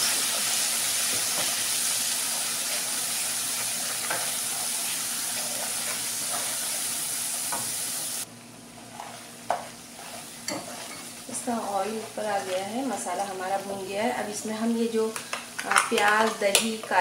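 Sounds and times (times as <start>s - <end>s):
spice paste sizzling in hot oil: 0.0s - 14.5s
wooden spatula scraping pan: 8.8s - 13.8s.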